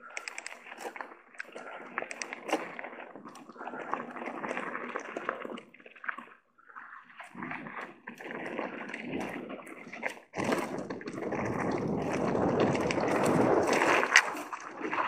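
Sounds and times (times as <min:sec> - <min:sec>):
bike rattling: 0:10.4 - 0:14.6.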